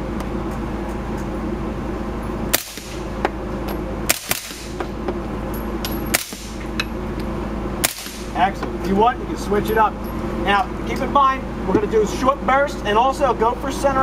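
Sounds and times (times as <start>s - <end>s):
steady low hum: 0.0s - 14.0s
suppressed gunshots: 2.5s - 3.1s, 4.1s - 4.8s, 6.1s - 6.6s, 7.8s - 8.3s.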